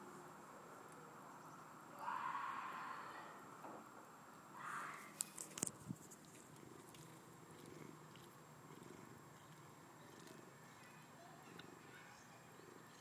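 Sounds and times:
cat purring: 6.1 - 13.0.

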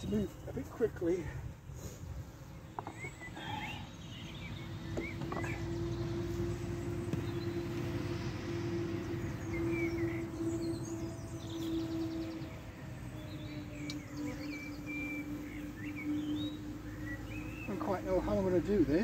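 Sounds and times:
bees buzzing: 0.0 - 19.0
small birds chirping: 0.0 - 19.0.

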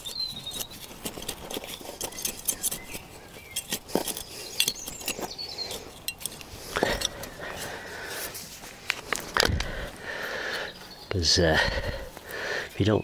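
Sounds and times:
hand trowel scraping soil: 0.0 - 10.3.

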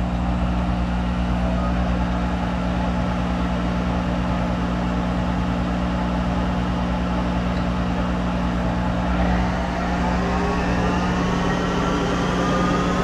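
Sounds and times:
lathe running hum: 7.0 - 13.0.

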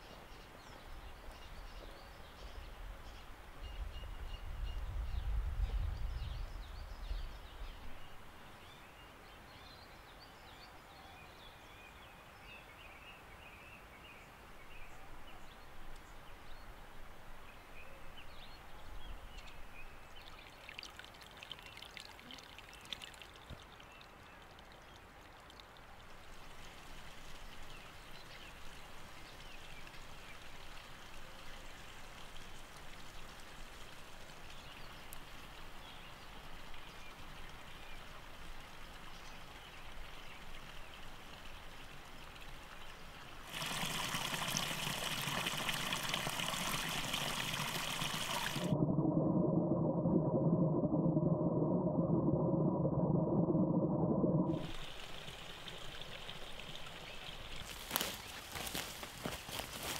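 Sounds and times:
water trickling: 19.5 - 35.7, 36.4 - 59.9
low rumble: 48.4 - 54.8.

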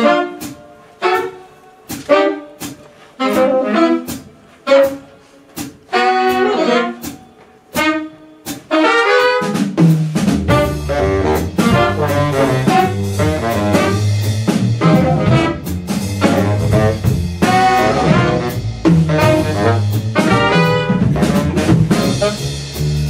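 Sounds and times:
jazz horn section chords: 0.0 - 23.0.

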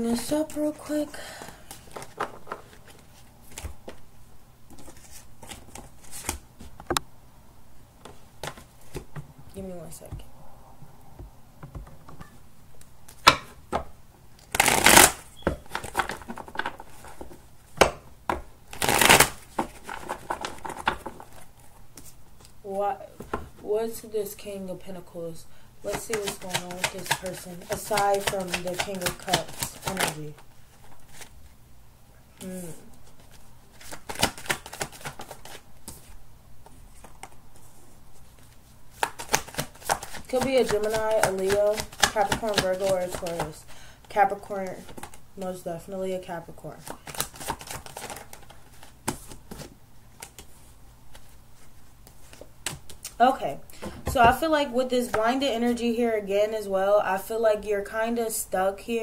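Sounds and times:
cards being shuffled: 1.4 - 4.0, 4.7 - 6.8, 8.0 - 9.1, 14.4 - 22.6, 25.9 - 31.6, 33.0 - 43.6, 44.3 - 45.5, 46.8 - 53.2.

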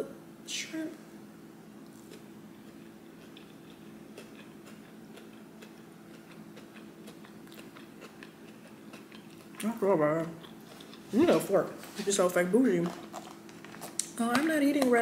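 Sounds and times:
chewing with wet crunches: 1.8 - 11.1, 12.8 - 14.2.

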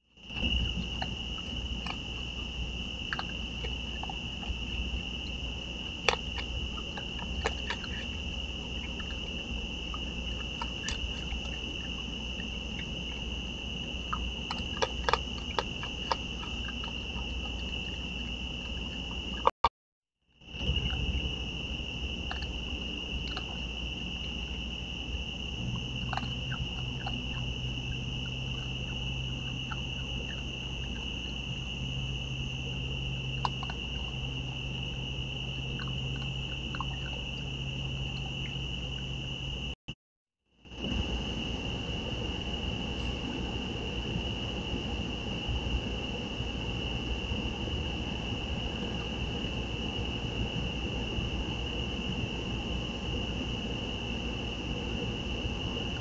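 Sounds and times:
night insects trilling: 0.1 - 19.6, 20.4 - 39.8, 40.7 - 56.0
animals crunching dry food: 0.3 - 19.5
low hum: 20.4 - 39.8.

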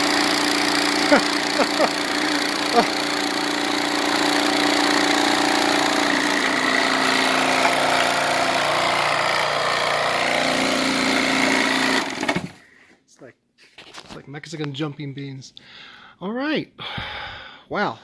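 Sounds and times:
vibration motor humming: 0.0 - 12.6
metal screen rattling with shavings: 0.7 - 12.5.

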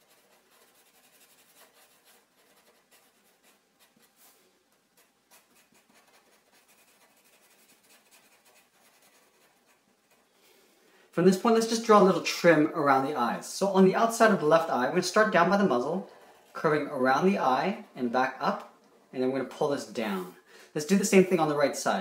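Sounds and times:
marker scratching on paper: 0.0 - 10.3.

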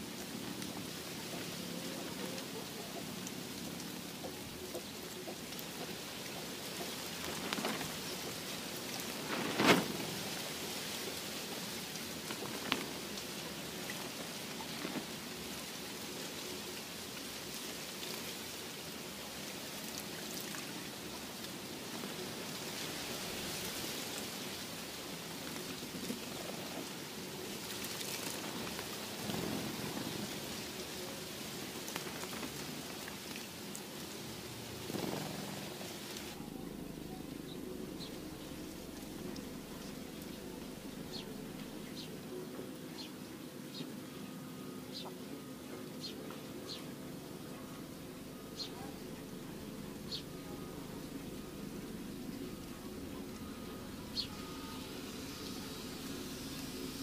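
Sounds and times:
birds splashing in water: 0.0 - 36.4.

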